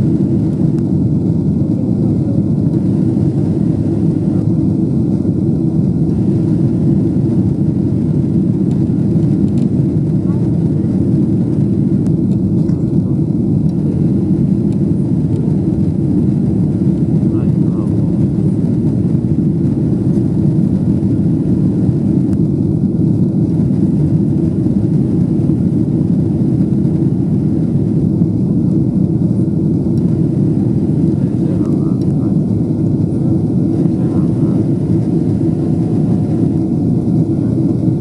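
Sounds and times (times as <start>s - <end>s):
airplane cabin engine roar: 0.0s - 38.0s
air rushing over fuselage: 32.3s - 38.0s.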